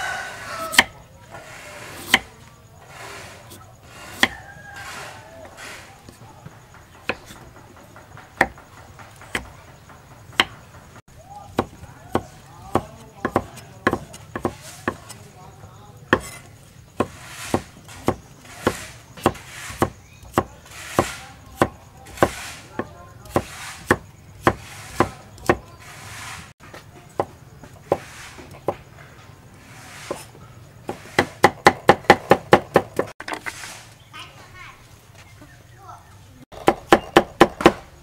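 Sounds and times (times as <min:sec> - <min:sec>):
cleaver chopping on wooden block: 0:00.6 - 0:01.0, 0:02.0 - 0:02.3, 0:03.5 - 0:05.0, 0:06.9 - 0:07.5, 0:08.2 - 0:10.7, 0:11.5 - 0:15.2, 0:16.1 - 0:25.7, 0:30.9 - 0:33.2, 0:36.5 - 0:38.0.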